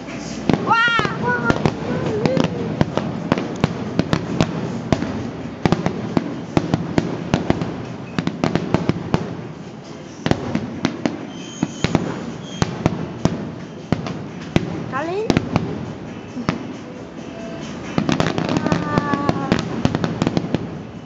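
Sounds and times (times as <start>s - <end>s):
continuous rumble: 0.0s - 11.3s
fireworks bangs: 0.0s - 21.0s.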